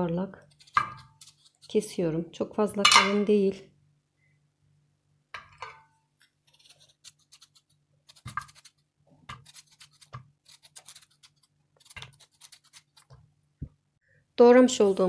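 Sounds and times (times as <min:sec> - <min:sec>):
knife slicing potato: 0:00.4 - 0:01.9, 0:06.3 - 0:13.2.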